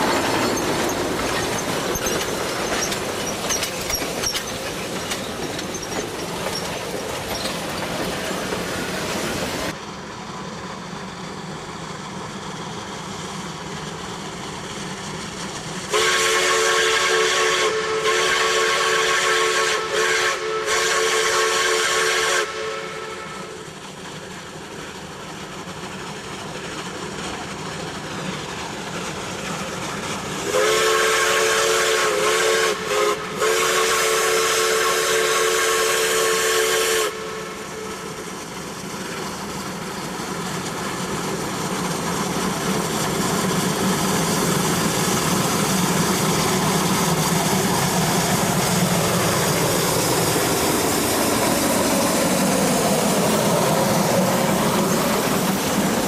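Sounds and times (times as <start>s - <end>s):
steam locomotive working hard: 0.0s - 56.0s
steam whistle blasts: 15.9s - 23.6s, 30.4s - 38.1s.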